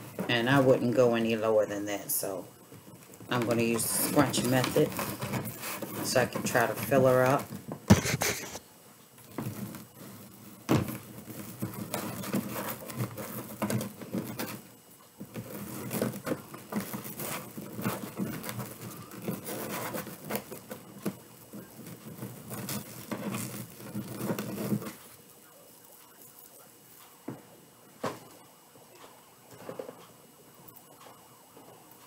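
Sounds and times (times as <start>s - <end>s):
mesh rustling and crinkling: 2.6s - 7.9s, 9.2s - 32.0s.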